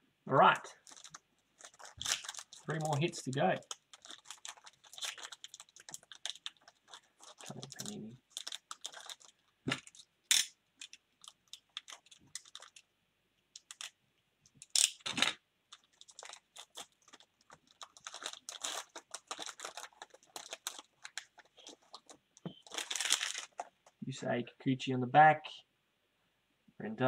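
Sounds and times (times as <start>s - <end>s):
card pack wrapper crinkling: 0.6s - 12.8s, 13.6s - 14.0s, 15.7s - 24.0s
cards rustling: 0.8s - 10.1s, 10.8s - 12.8s, 13.6s - 13.9s, 15.7s - 24.0s.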